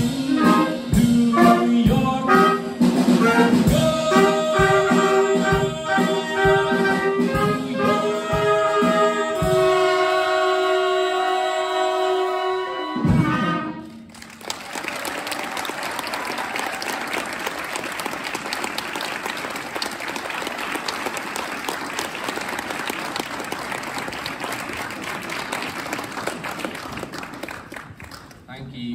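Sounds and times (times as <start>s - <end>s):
big band held chord: 0.0s - 14.3s
audience applause: 14.0s - 28.5s.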